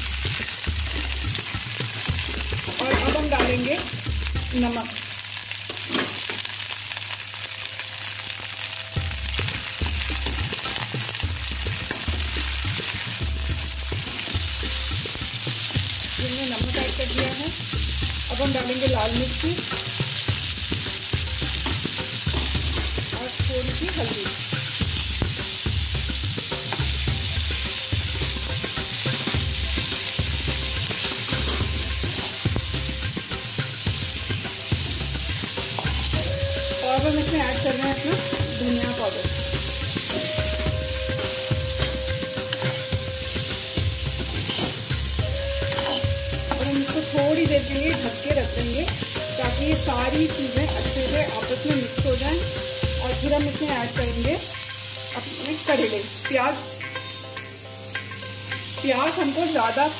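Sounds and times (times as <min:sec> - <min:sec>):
potatoes sizzling in oil: 0:00.0 - 0:59.9
ladle scraping and knocking pan: 0:44.2 - 0:45.0, 0:45.6 - 0:46.8.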